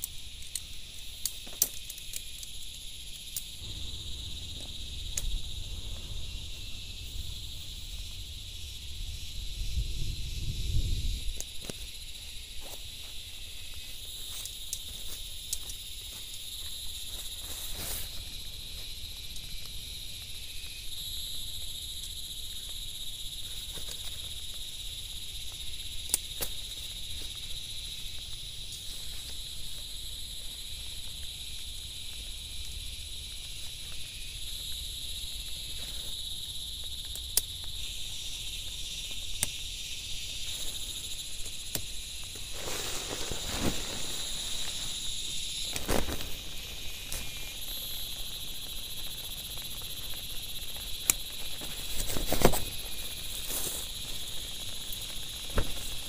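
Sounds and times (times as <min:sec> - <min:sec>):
insects chorus: 0:00.0 - 0:56.0
tent fabric rustling: 0:42.4 - 0:45.1.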